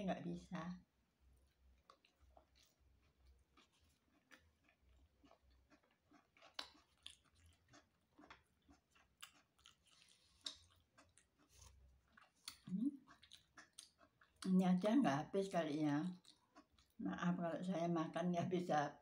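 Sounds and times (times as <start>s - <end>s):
person chewing: 1.4s - 14.5s, 16.1s - 17.0s.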